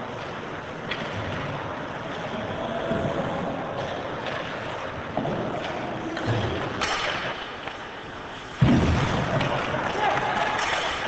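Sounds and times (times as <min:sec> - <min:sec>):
arena noise: 0:00.0 - 0:11.0
hockey sticks and puck clicking: 0:00.1 - 0:02.3, 0:03.8 - 0:08.3, 0:09.0 - 0:11.0.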